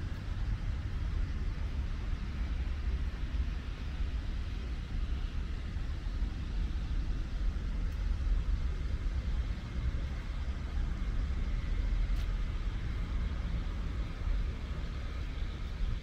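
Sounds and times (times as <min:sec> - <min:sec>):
distant road traffic rumble: 0:00.0 - 0:16.0.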